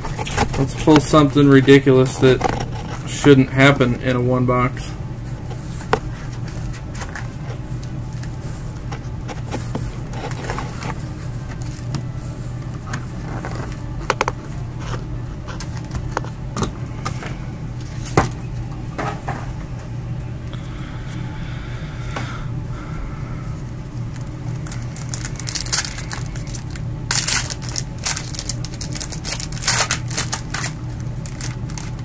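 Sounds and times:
steady low hum: 0.0 - 32.0
foil packs rustling: 9.3 - 11.9, 24.6 - 32.0.

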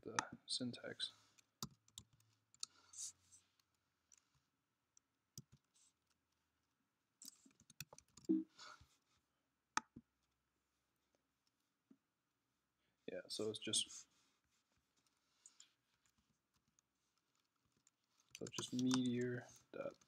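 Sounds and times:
keyboard typing: 1.6 - 2.8, 7.2 - 8.4, 16.0 - 20.0.

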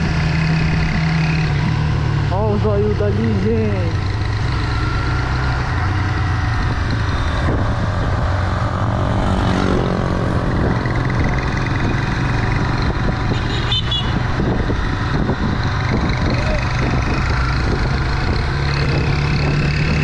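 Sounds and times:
motorcycle engine rumble: 0.0 - 20.0
wind rushing over microphone: 5.0 - 20.0.

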